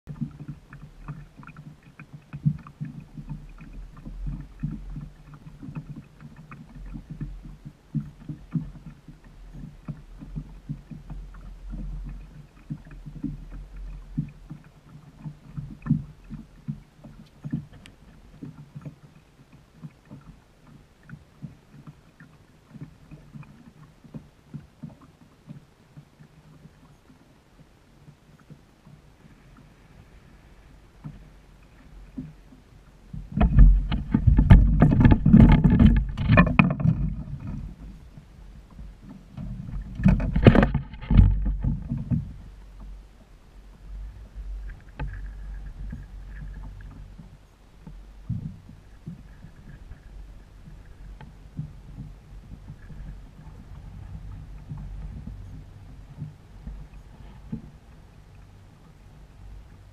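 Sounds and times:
waves slapping against boat hull: 0:00.1 - 0:59.9
wind rumble on microphone: 0:25.6 - 0:59.9.

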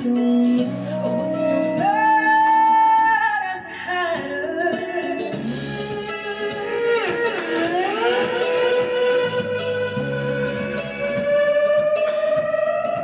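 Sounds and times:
guitar held note bending: 0:00.0 - 0:13.0
low bass notes: 0:04.3 - 0:13.0.

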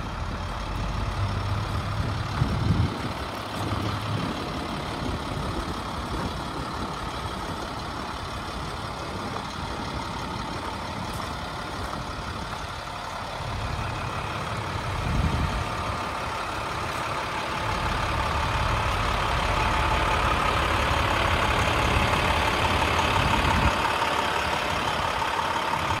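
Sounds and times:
diesel engine idling: 0:00.0 - 0:26.0.

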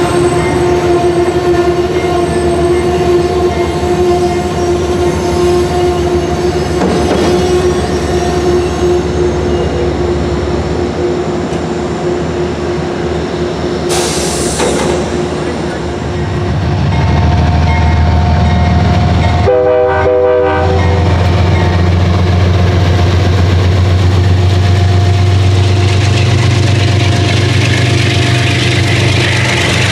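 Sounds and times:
train running close by: 0:00.0 - 0:29.9
burst of hiss: 0:13.9 - 0:15.0.

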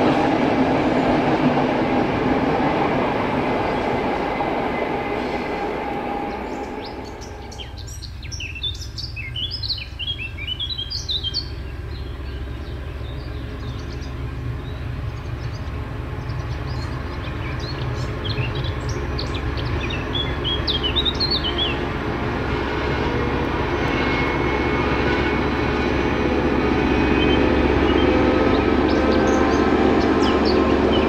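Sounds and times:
locomotive diesel engine drone: 0:00.0 - 0:31.0
songbirds chirping: 0:02.7 - 0:22.0, 0:27.1 - 0:31.0.

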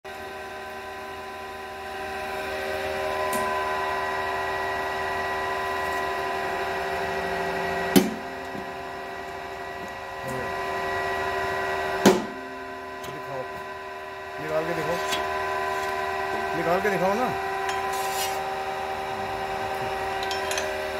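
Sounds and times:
press machine humming: 0:02.1 - 0:20.9
punch banging through metal plate: 0:08.0 - 0:08.2, 0:12.0 - 0:12.4.

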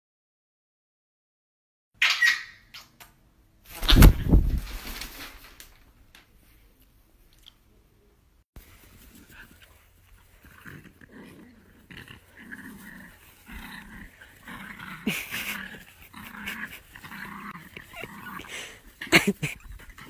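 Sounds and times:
dogs growling in play: 0:09.0 - 0:20.0.

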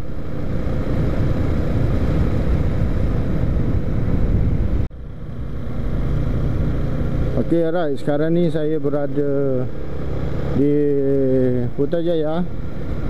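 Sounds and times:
motorcycle engine rumble: 0:00.0 - 0:13.0
wind buffeting microphone: 0:00.2 - 0:04.9.

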